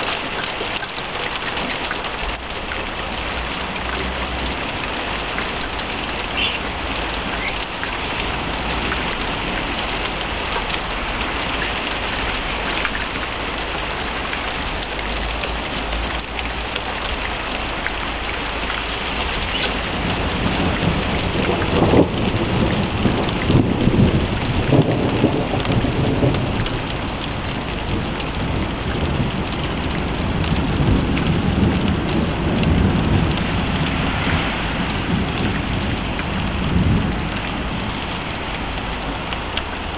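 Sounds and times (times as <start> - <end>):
heavy rain pouring: 0.0 - 39.9
thunder rumbling: 18.5 - 39.9.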